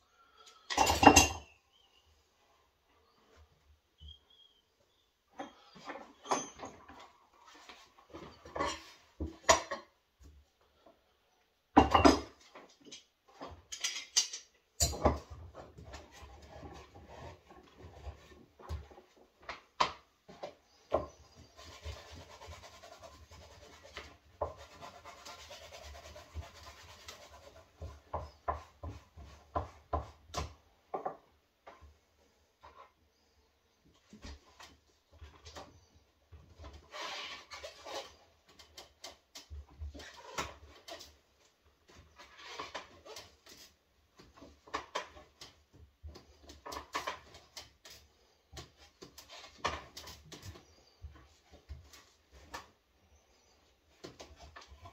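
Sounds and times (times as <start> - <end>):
steady rubbing noise: 21.2 - 29.5.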